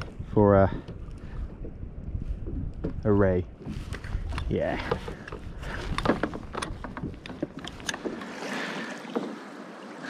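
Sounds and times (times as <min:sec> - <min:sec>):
wind buffeting microphone: 0:00.0 - 0:09.0
fishing tackle clicks and knocks: 0:03.7 - 0:08.4.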